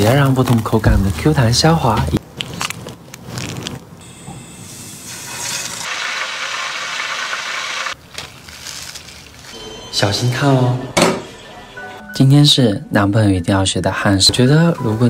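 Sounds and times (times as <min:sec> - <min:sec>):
chicken sizzling in hot oil: 0:04.6 - 0:08.0.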